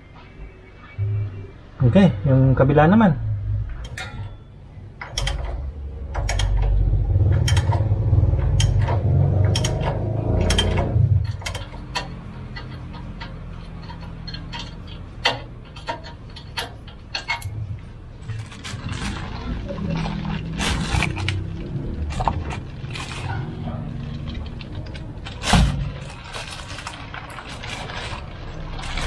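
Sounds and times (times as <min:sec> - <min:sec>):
sharp clicks: 0:05.0 - 0:13.4
rustling: 0:17.8 - 0:29.0.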